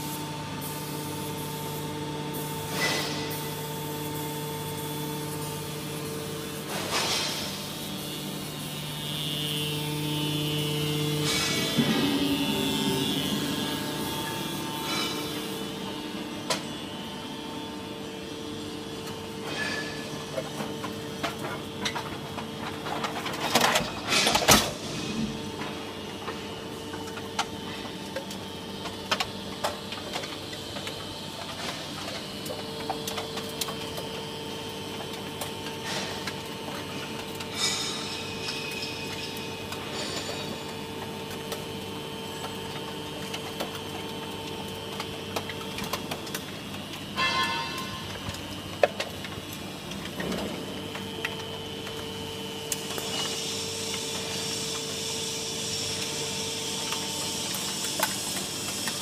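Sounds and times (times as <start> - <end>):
can baler machine hum: 0.0 - 59.0.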